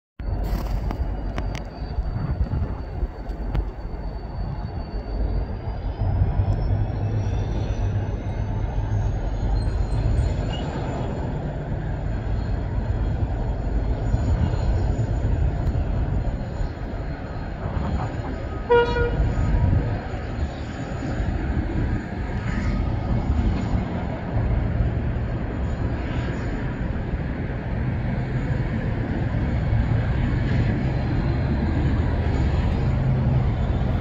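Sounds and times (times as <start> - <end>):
diesel locomotive engine drone: 0.2 - 34.0
high rising whine: 0.2 - 34.0
train horn toot: 18.4 - 20.0.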